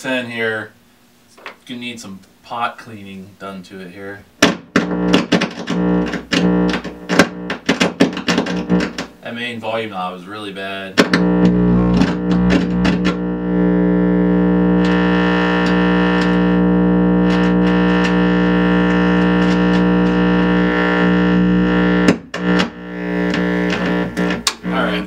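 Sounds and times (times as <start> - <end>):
amp crackles and pops: 4.4 - 9.3, 10.9 - 25.0
distorted guitar amp drone: 4.6 - 9.1, 11.0 - 25.0.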